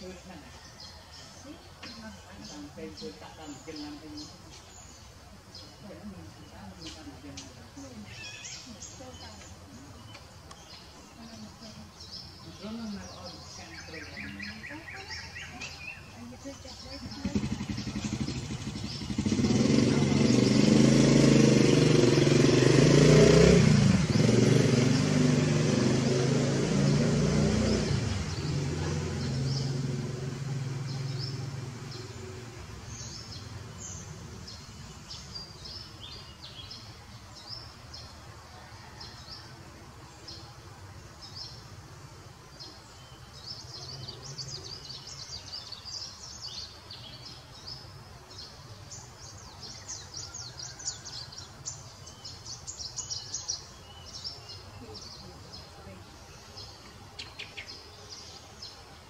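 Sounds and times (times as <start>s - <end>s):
outdoor background noise: 0.0s - 59.0s
small birds chirping: 0.0s - 59.0s
vehicle engine hum: 14.1s - 39.0s.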